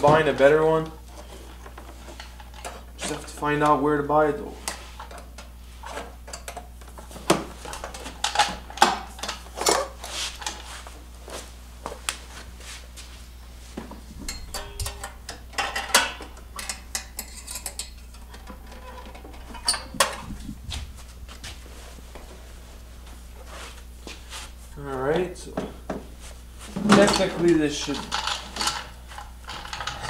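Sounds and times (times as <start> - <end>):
metallic clinks and rattles: 14.3 - 18.0.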